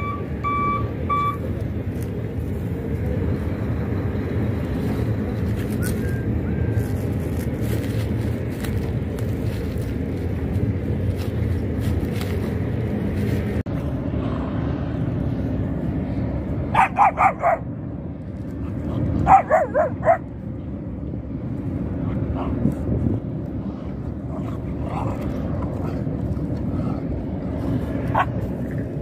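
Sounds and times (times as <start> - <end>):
steady low rumble: 0.0 - 29.0
puppies yapping: 19.2 - 20.3.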